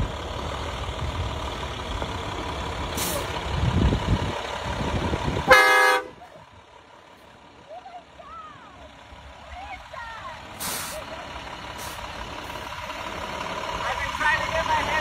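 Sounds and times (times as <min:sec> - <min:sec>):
truck engine rumbling: 0:00.0 - 0:15.0
train horn blast: 0:05.4 - 0:06.2
brief hiss: 0:10.6 - 0:11.1.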